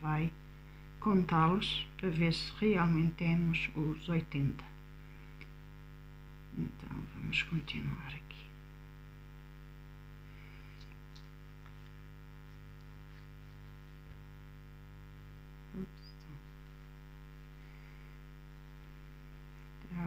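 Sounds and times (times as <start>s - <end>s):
electrical mains hum: 0.0s - 20.0s
soft rustles: 10.6s - 14.4s.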